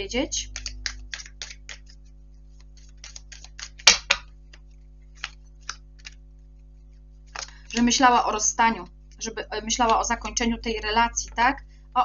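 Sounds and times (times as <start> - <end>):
cards clicking and tapping on table: 0.6 - 6.2.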